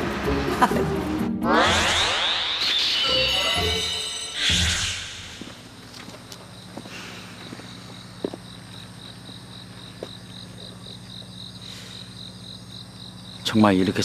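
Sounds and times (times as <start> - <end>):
crickets chirping: 3.0 - 14.0.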